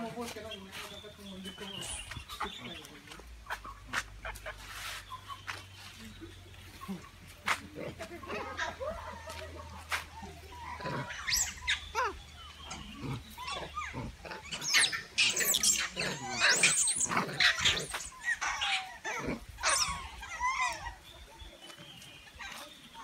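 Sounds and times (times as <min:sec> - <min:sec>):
monkeys squealing: 0:10.1 - 0:21.0.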